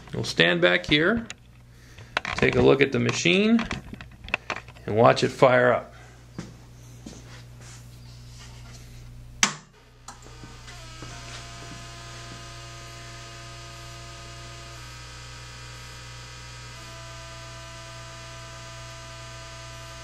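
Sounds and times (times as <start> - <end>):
welder buzzy hum with whining tones: 0.0 - 20.0
welder switch click: 9.4 - 10.4.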